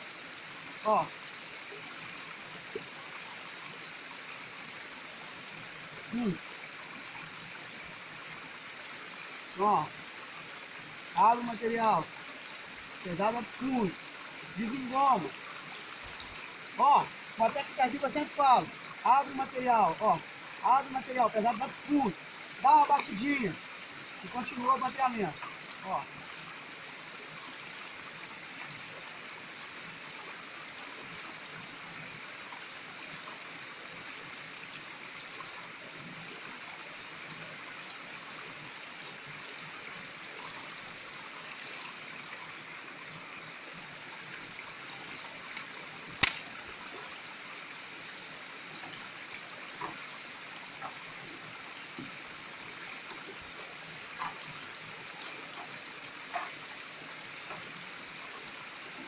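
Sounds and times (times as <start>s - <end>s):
stream running over rock: 0.0s - 59.0s
sharp knock: 46.2s - 46.4s
gravel clicking in pan: 46.2s - 46.5s.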